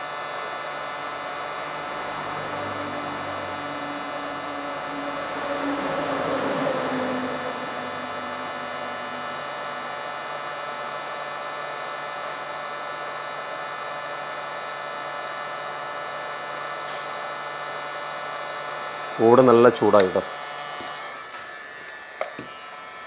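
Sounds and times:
rushing noise: 0.0 - 11.8
motor-like whirring hum: 0.0 - 23.0.

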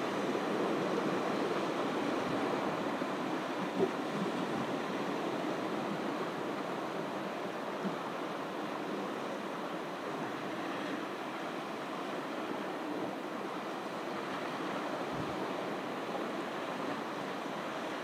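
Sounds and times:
ocean surf washing on beach: 0.0 - 18.0.

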